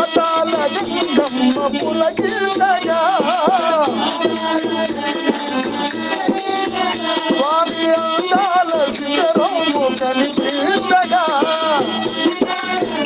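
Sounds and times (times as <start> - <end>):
devotional folk song: 0.0 - 13.0
percussion: 0.0 - 13.0.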